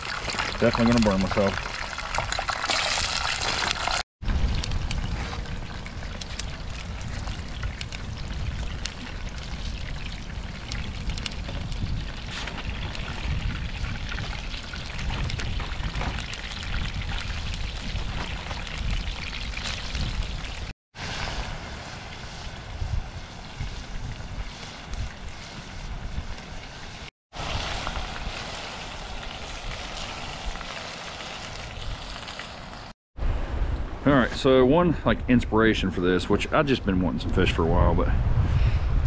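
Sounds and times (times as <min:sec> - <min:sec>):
food deep-frying in hot oil: 0:00.0 - 0:33.0
fish sizzling in a skillet: 0:01.4 - 0:04.0, 0:05.6 - 0:21.3, 0:26.2 - 0:33.0
wind rumbling on microphone: 0:03.8 - 0:32.4, 0:33.2 - 0:39.0.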